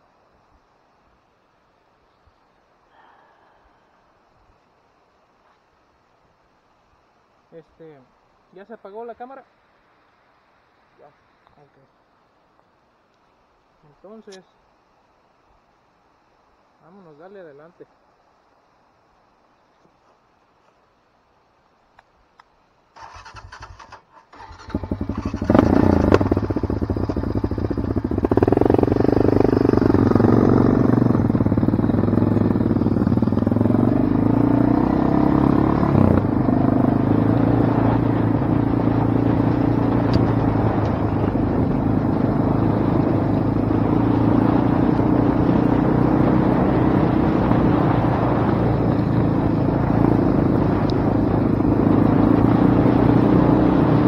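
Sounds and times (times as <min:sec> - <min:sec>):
off-road vehicle engine: 0:23.0 - 0:54.0.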